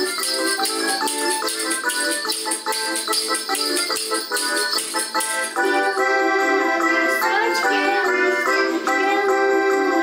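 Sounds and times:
hand rattles shaken: 0:00.0 - 0:05.8
folk song backing music: 0:00.0 - 0:10.0.

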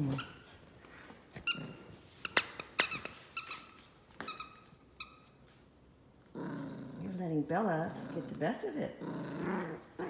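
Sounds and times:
dog toy squeaking: 0:01.4 - 0:05.3.

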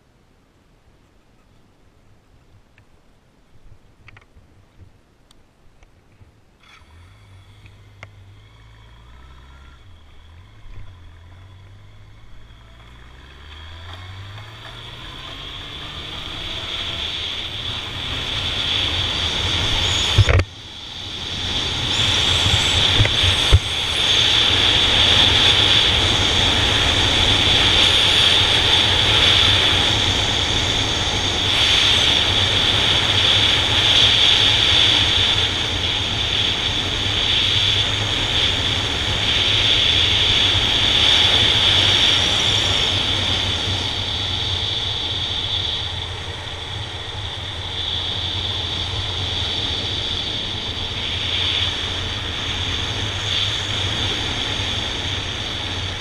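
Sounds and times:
motorcycle engine running: 0:06.6 - 0:56.0.

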